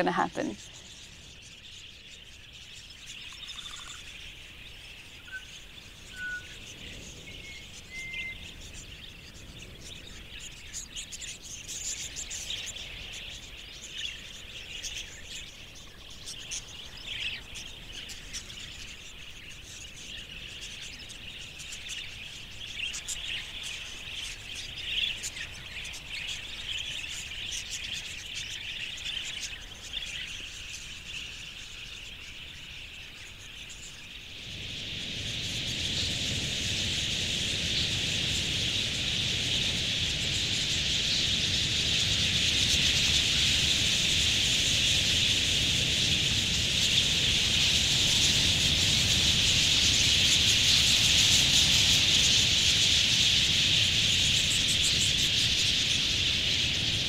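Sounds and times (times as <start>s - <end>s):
flock of parakeets chattering: 0.0s - 57.0s
short whistled bird notes: 6.1s - 6.6s.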